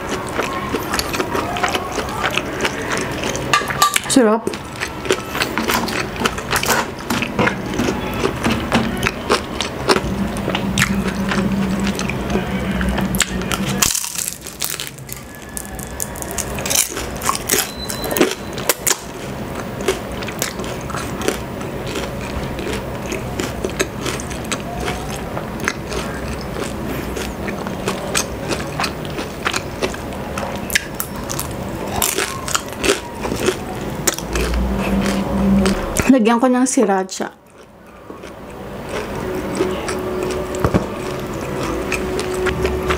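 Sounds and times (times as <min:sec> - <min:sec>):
crunching fried spring roll: 0:13.2 - 0:35.8.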